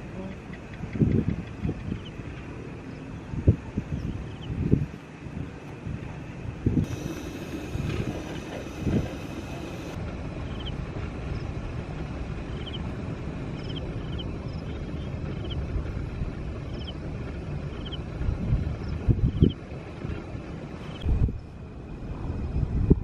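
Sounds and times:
wind rumble on microphone: 0:00.0 - 0:23.0.

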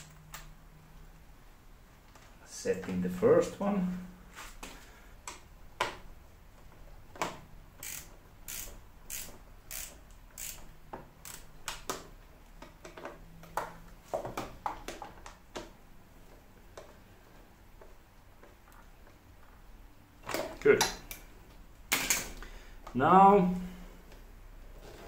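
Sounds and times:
tools clicking on metal screws: 0:07.8 - 0:12.0.

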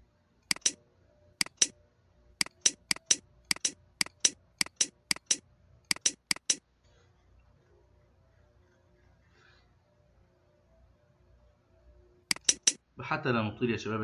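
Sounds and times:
computer mouse clicking: 0:00.5 - 0:00.8, 0:01.4 - 0:01.7, 0:02.4 - 0:06.6, 0:12.3 - 0:12.8.

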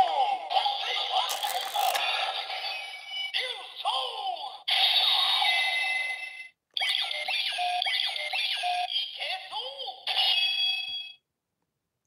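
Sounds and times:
toy electronic sound effects: 0:00.7 - 0:03.1.

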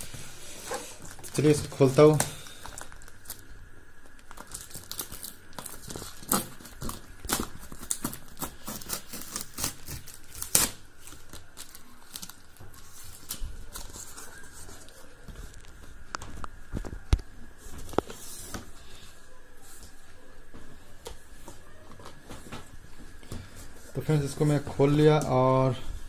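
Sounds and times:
plastic wrapping crinkling: 0:00.0 - 0:18.6.

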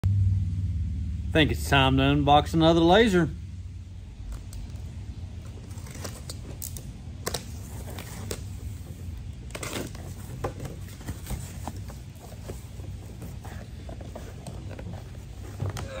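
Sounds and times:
steady low hum: 0:00.0 - 0:16.0
tape and cardboard tearing: 0:05.4 - 0:16.0.

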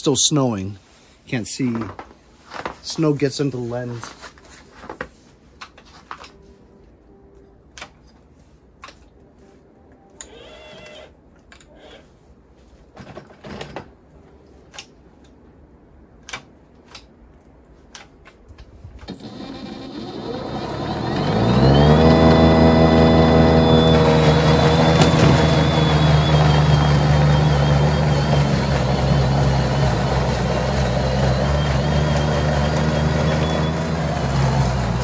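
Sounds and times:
electric motor whining: 0:19.1 - 0:35.0.

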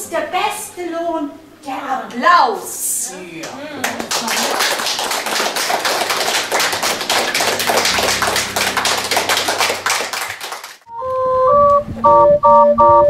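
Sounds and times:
audience applauding: 0:03.4 - 0:10.9.

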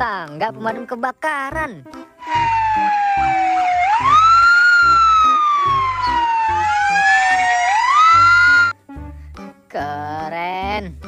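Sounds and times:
fire engine sirens wailing: 0:02.2 - 0:08.7.

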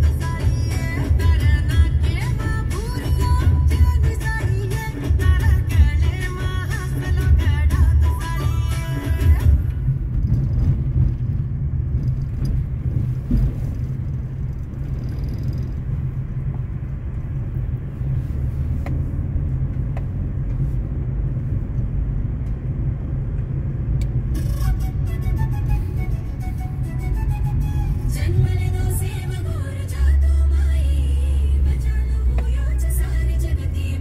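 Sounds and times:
car engine and tyres rumbling: 0:00.0 - 0:34.0.

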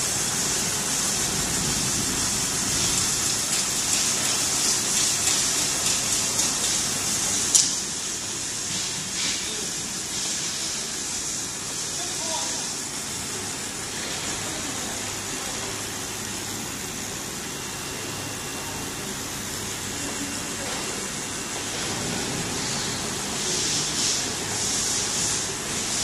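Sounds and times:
machine hum: 0:00.0 - 0:08.7.

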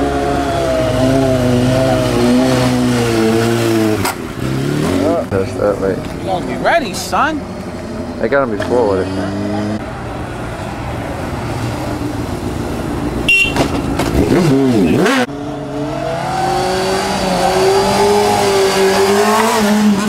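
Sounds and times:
motorcycle engine revving: 0:00.0 - 0:06.0, 0:07.3 - 0:09.8, 0:13.1 - 0:20.0.

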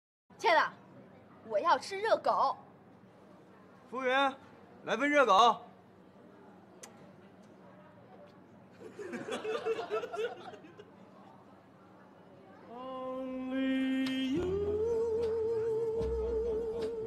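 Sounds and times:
music with long held notes: 0:13.6 - 0:17.0.

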